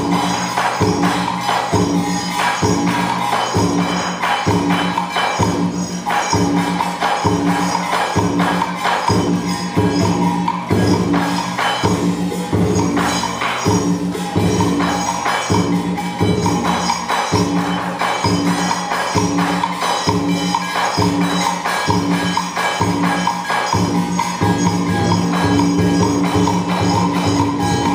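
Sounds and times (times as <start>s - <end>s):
percussion clicks and clatter: 0.0s - 27.9s.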